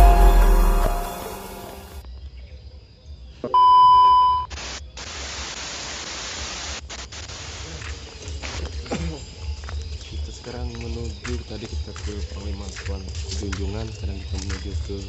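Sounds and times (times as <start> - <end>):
electronic beep: 3.5 - 4.5
television static hiss: 4.5 - 7.8.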